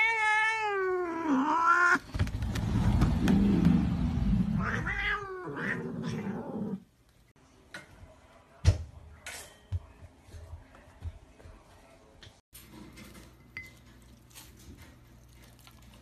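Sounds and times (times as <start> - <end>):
cat yowling: 0.0 - 2.0, 4.6 - 6.8.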